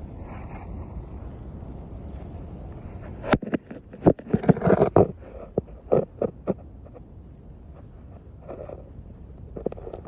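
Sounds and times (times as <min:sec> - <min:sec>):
steady low rush: 0:00.0 - 0:03.3.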